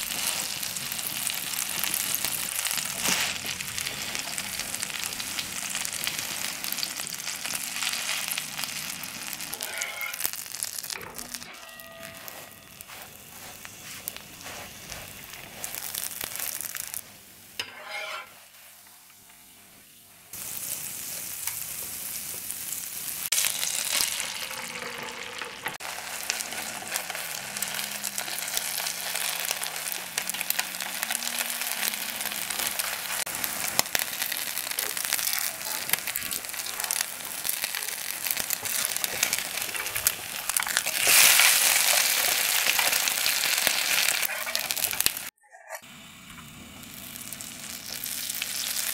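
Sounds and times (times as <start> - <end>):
food sizzling in a pan: 0.0 - 48.9
spatula scraping a pan: 9.3 - 10.5, 11.2 - 17.0, 17.6 - 19.0, 38.3 - 45.8.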